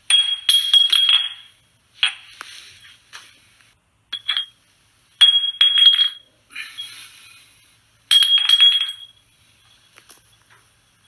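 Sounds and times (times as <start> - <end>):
soft rustle: 2.2 - 3.8
small hard objects clinking: 4.1 - 4.6, 8.1 - 11.0.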